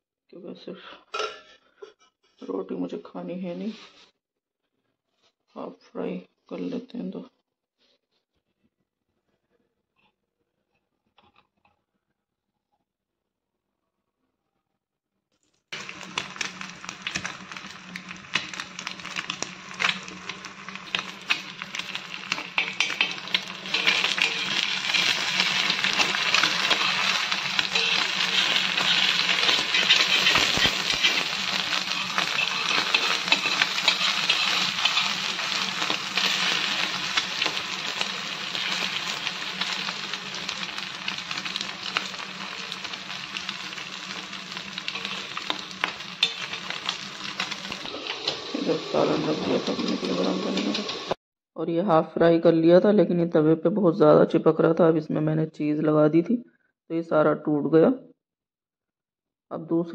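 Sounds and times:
egg sizzling: 15.7 - 51.2
metal spatula scraping griddle: 18.3 - 39.9, 44.1 - 51.1.

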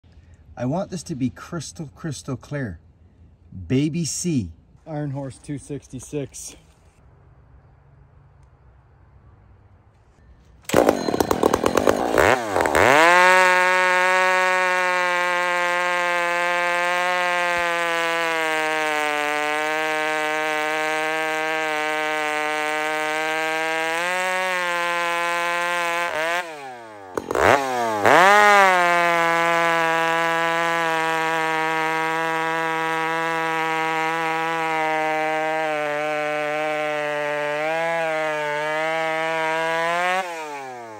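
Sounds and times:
chainsaw cutting log: 10.7 - 40.9.

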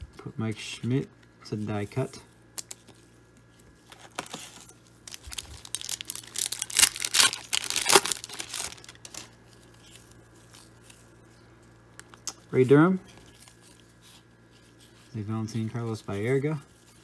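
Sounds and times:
foil pack crinkling: 3.7 - 12.2.

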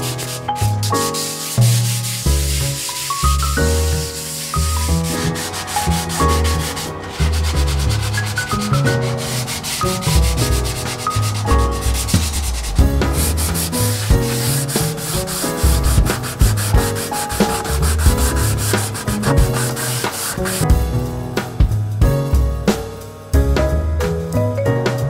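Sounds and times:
sanding pad rubbing wood: 0.0 - 20.8
background music: 0.0 - 25.0.

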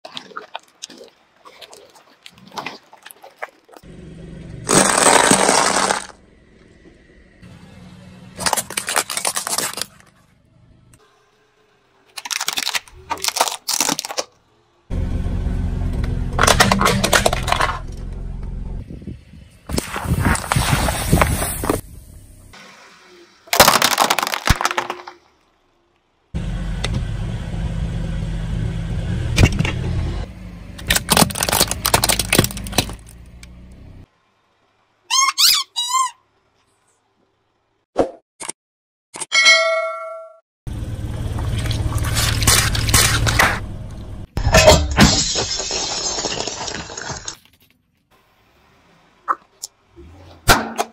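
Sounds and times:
car engine and tyres rumbling: 3.7 - 37.8, 40.7 - 44.8, 47.4 - 50.9
tyre crushing brittle objects: 4.6 - 6.2, 8.4 - 10.2, 12.1 - 14.4, 16.4 - 18.0, 23.5 - 25.2, 30.8 - 33.2, 41.5 - 43.6.

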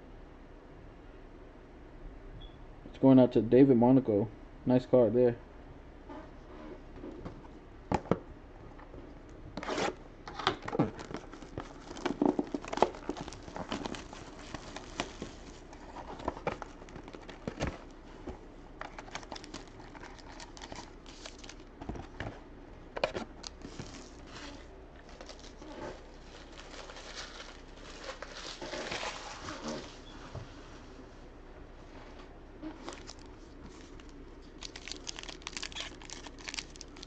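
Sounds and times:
packaging crinkling and rustling: 9.6 - 22.4, 23.0 - 30.0, 32.7 - 37.0.

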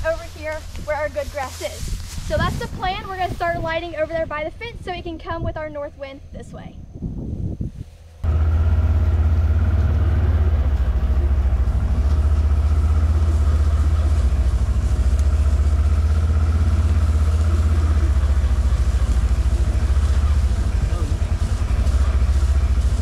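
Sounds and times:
utility vehicle engine running: 8.2 - 23.0.

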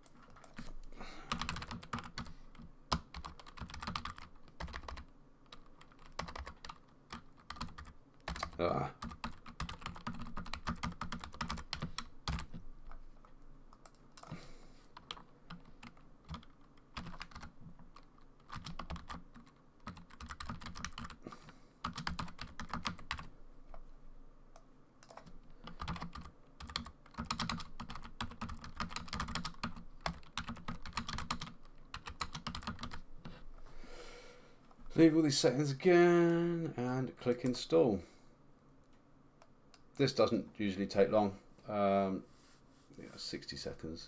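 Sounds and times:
keyboard typing: 0.0 - 14.4, 15.0 - 21.2, 21.8 - 23.3, 25.0 - 33.0.

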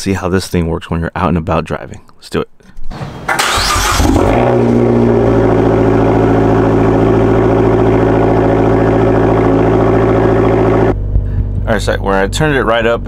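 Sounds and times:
car engine starting and idling: 3.3 - 13.0.

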